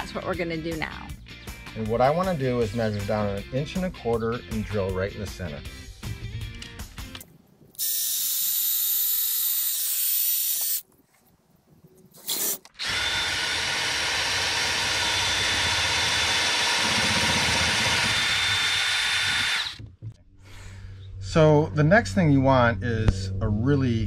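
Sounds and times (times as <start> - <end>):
cordless drill boring into wood: 7.8 - 10.8, 12.7 - 19.8.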